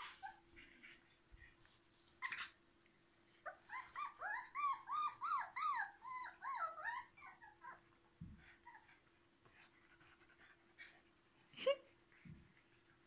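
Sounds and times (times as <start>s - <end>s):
puppy whining: 0.0s - 2.6s, 3.3s - 9.1s.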